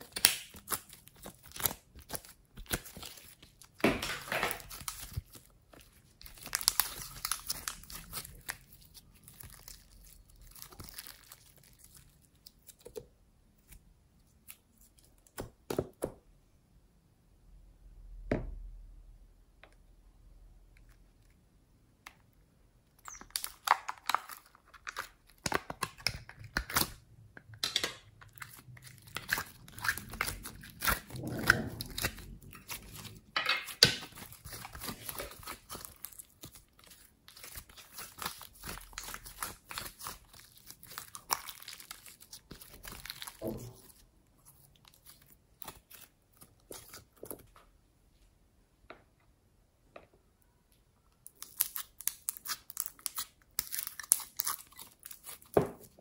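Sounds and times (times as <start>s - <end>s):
sticky slime clicks and crackles: 0.0s - 3.5s.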